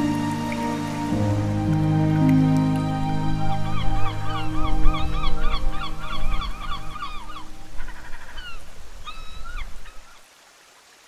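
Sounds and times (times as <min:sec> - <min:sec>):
gull calling: 0:02.1 - 0:10.2.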